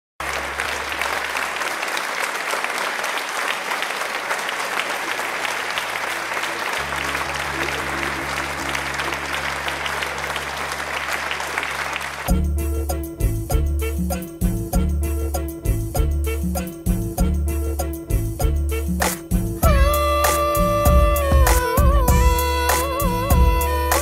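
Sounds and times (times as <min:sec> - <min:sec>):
audience applauding: 0:00.2 - 0:12.3
low musical drone: 0:06.8 - 0:12.6
band music with strong beat: 0:12.1 - 0:24.0.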